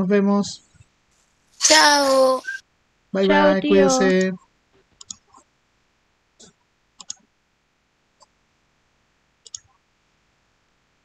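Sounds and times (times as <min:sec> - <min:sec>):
faint computer mouse clicks: 0:05.0 - 0:05.4, 0:06.4 - 0:07.2, 0:09.4 - 0:09.8.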